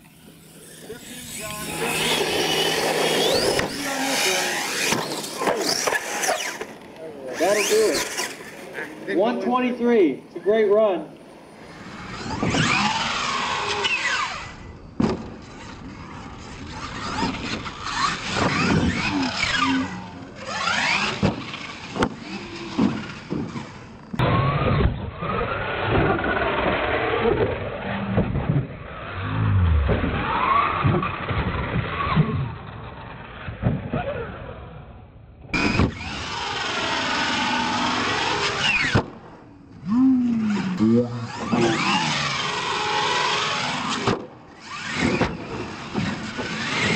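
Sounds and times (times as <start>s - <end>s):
electric motor whining: 0.0s - 8.9s, 11.6s - 24.7s, 35.6s - 46.9s.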